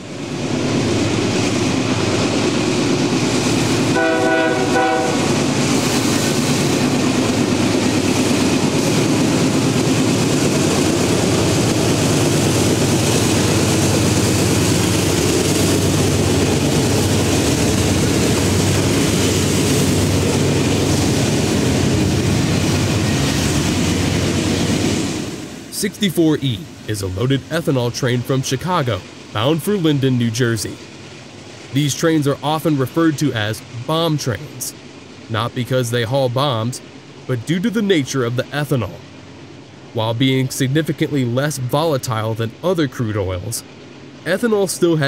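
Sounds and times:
diesel locomotives at full throttle: 0:00.0 - 0:45.0
train wheels clicking over rails: 0:00.4 - 0:25.7
train horn blast: 0:03.9 - 0:05.3.

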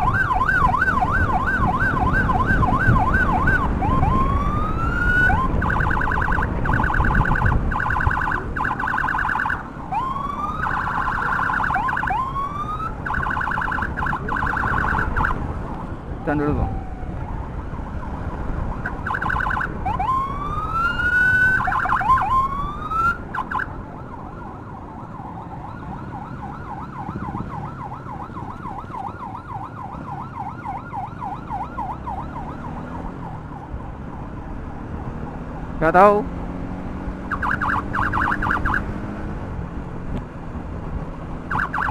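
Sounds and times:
electronic emergency siren: 0:00.0 - 0:34.4, 0:37.1 - 0:39.0, 0:41.5 - 0:41.9
road and wind rumble: 0:00.0 - 0:41.9.

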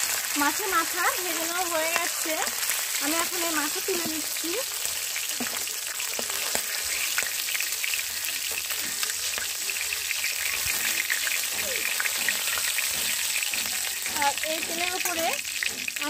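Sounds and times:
fish frying in sizzling oil: 0:00.0 - 0:16.0.

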